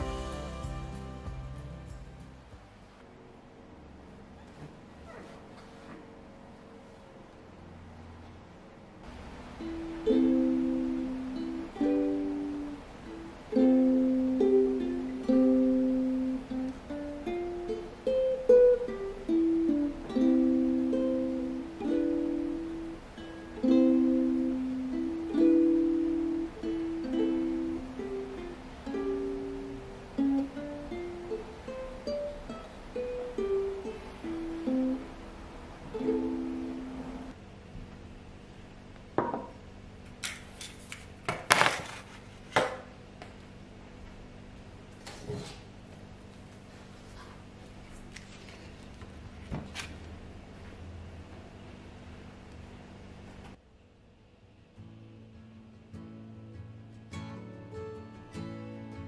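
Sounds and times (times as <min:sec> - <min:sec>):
ukulele chords: 0:00.0 - 0:03.0, 0:09.1 - 0:37.4.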